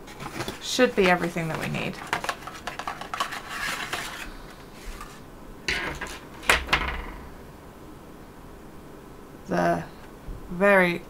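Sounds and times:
packaging rustling: 0.0s - 5.2s.

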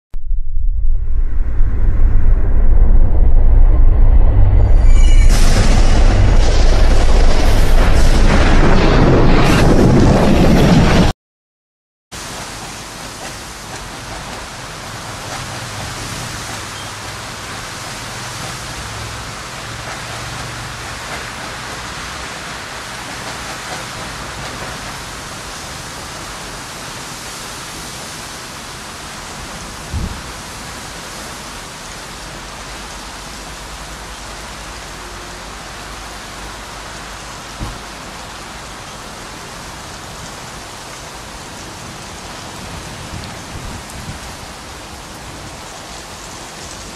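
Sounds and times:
low thumps: 0.1s - 8.8s
wind: 0.1s - 11.1s, 12.1s - 46.9s
low thunder rumble: 0.2s - 11.1s
rain: 4.6s - 11.1s, 12.1s - 46.9s.

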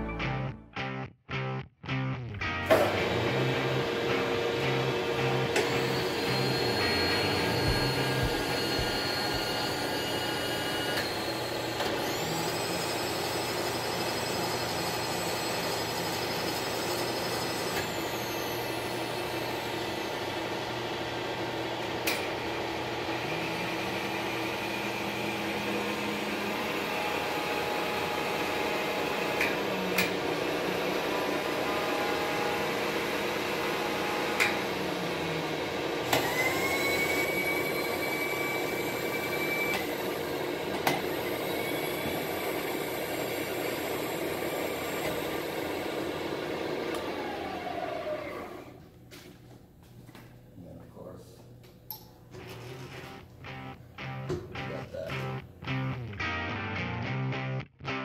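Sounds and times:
lower machine tone: 2.6s - 11.3s
high machine whine: 2.7s - 20.2s
milling machine motor hum: 2.7s - 48.8s.

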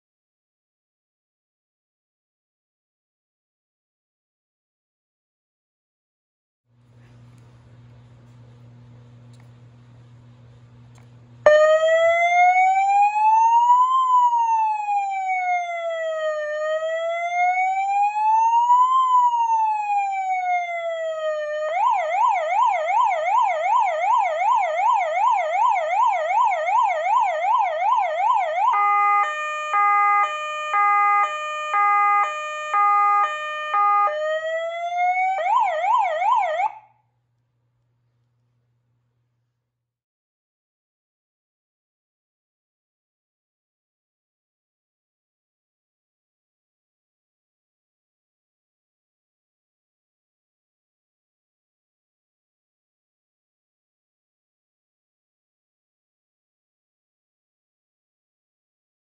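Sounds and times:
electronic police siren: 11.4s - 37.0s.

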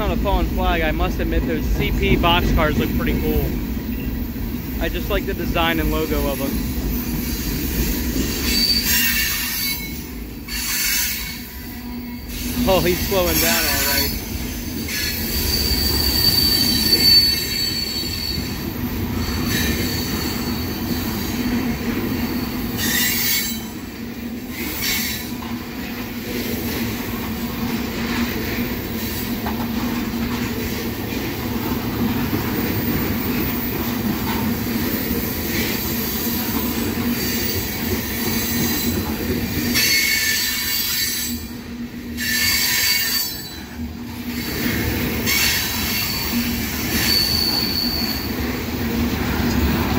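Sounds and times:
train wheels rumbling on rail: 0.0s - 49.9s
high wheel squeals: 6.2s - 23.8s, 42.2s - 48.5s.

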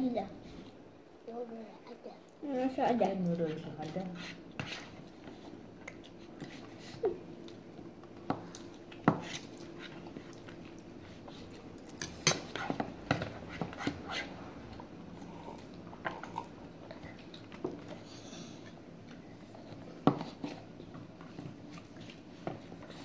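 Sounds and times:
person chewing and slurping noodles: 15.2s - 17.5s.

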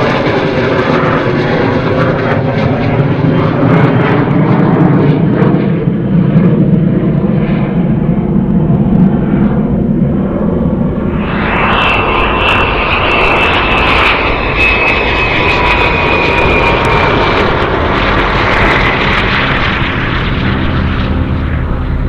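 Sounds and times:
jet engine roar: 0.0s - 22.0s
high whine: 6.8s - 22.0s.

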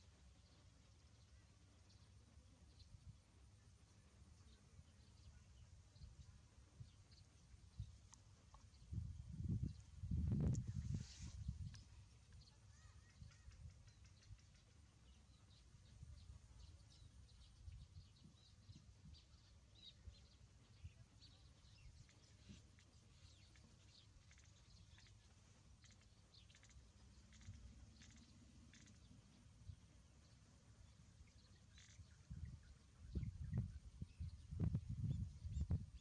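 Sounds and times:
high-pitched ticks and chirps: 11.6s - 14.9s, 21.9s - 29.2s, 31.3s - 32.4s.

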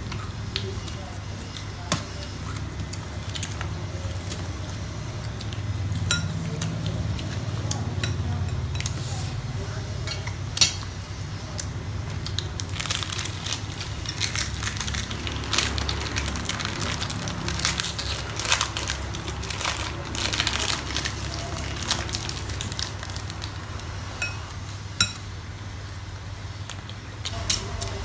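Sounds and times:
food crunching: 0.0s - 24.7s
foil wrapper crinkling: 12.2s - 24.0s.

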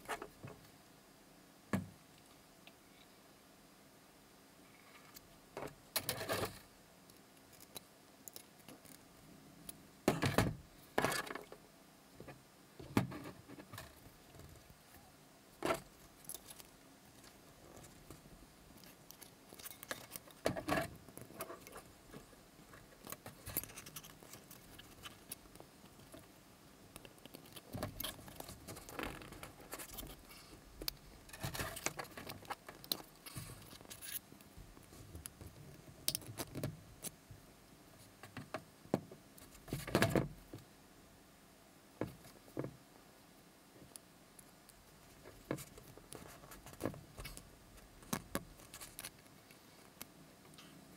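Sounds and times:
metal wire clicking and scraping: 5.9s - 9.0s, 15.6s - 26.3s, 26.9s - 37.2s.

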